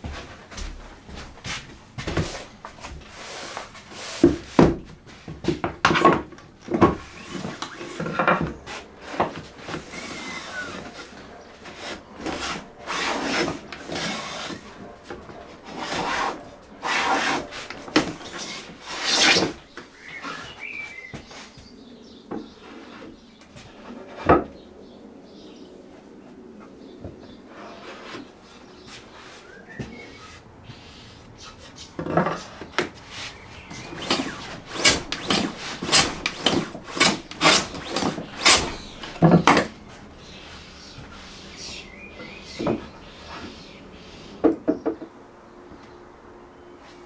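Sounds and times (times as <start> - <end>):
hand tool scraping wood: 1.5 - 20.7, 27.5 - 29.5, 30.1 - 43.7.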